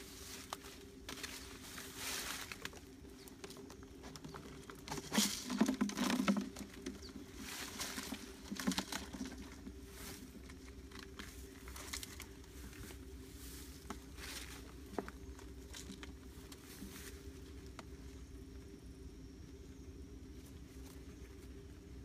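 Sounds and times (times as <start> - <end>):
plastic bottle crinkling and knocking: 3.4 - 12.3.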